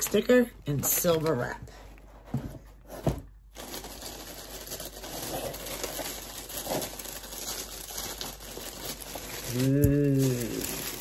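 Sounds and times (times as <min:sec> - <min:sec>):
tissue paper rustling: 0:02.9 - 0:11.0.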